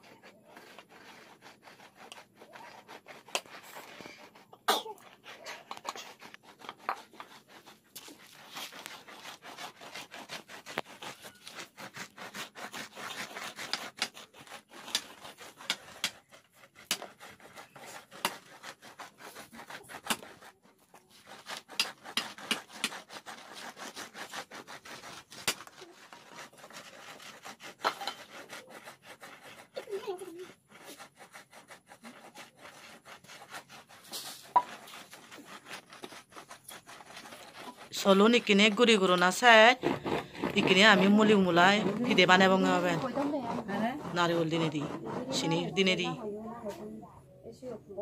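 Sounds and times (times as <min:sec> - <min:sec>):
glass bottles scraping over rice: 0:08.0 - 0:16.6, 0:25.2 - 0:28.3, 0:33.8 - 0:46.2.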